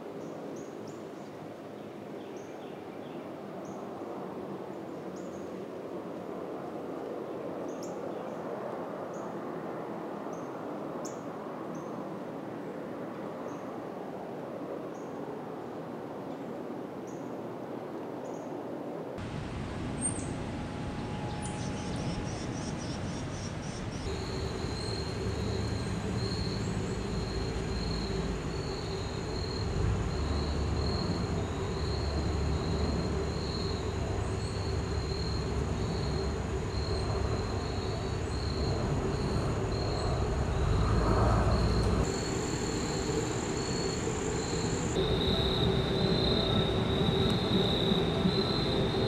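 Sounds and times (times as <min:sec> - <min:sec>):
low steady rumble: 0:19.2 - 0:42.1
insects chirping: 0:19.2 - 0:49.0
steady thin whine: 0:19.2 - 0:49.0.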